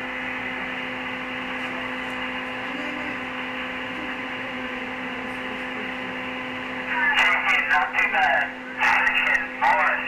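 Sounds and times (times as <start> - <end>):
radio static hiss: 6.8 - 10.0.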